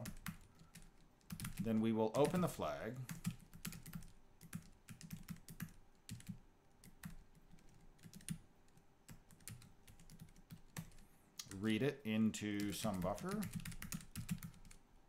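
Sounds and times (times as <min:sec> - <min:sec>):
keyboard typing clicks: 0:02.2 - 0:08.4, 0:12.6 - 0:14.8.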